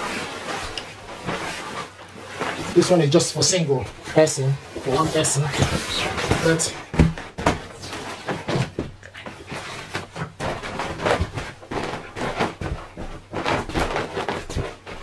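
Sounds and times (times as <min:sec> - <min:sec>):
nylon fabric rustling: 0:00.0 - 0:15.0
feet thumping on air mat: 0:03.8 - 0:15.0.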